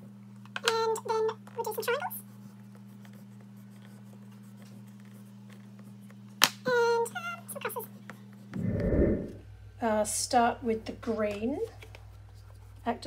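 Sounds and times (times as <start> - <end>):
oil pastel scratching on paper: 1.8 - 5.4
electrical hum: 8.5 - 9.6.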